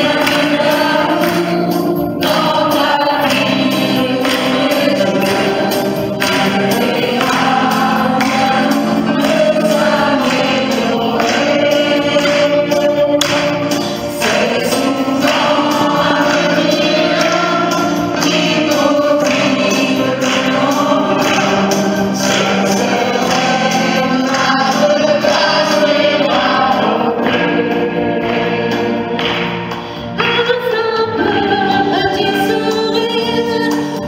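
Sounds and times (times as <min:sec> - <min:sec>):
mixed choir singing: 0:00.0 - 0:34.0.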